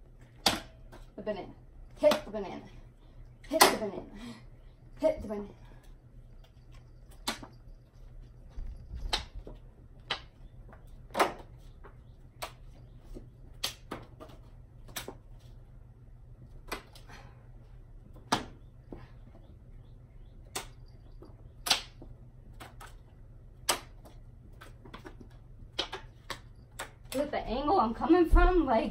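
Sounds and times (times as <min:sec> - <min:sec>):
playing cards slapping: 0:07.2 - 0:07.5, 0:12.3 - 0:15.4, 0:16.5 - 0:17.1, 0:21.6 - 0:27.2.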